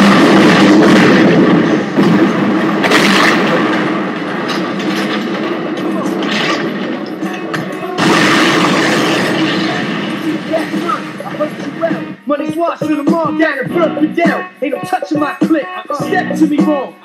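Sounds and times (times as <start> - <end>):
boat explosion blast: 0.0 - 12.2.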